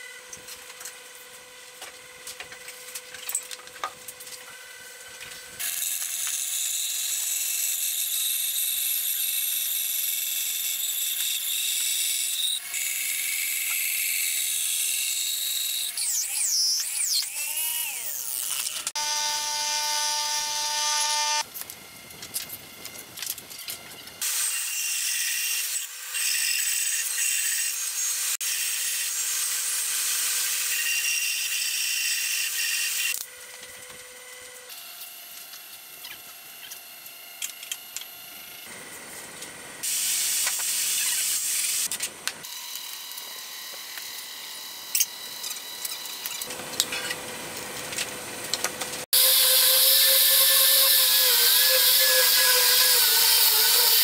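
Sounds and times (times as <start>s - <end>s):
bandsaw cutting boards: 0.0s - 21.5s, 22.3s - 54.0s
angle grinder sanding wood: 15.8s - 21.5s, 49.0s - 54.0s.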